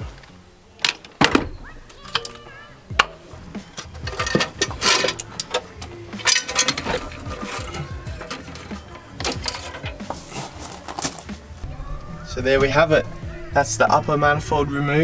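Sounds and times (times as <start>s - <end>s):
metal engine parts clunking: 0.0s - 11.7s.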